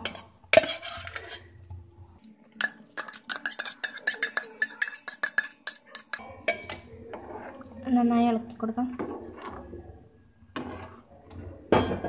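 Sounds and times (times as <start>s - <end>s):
spoon clinking against pot: 0.0s - 1.5s, 2.6s - 6.8s
clam meat scraped into pot: 0.6s - 1.5s, 2.6s - 6.2s.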